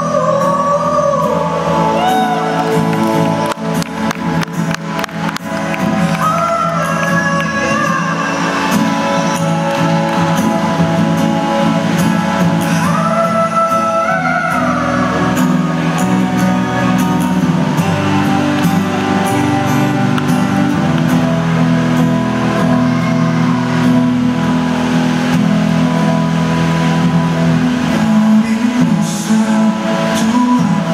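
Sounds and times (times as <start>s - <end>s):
man singing: 0.0s - 3.4s, 6.2s - 10.1s, 12.6s - 17.0s, 27.8s - 30.9s
acoustic guitar: 0.0s - 30.9s.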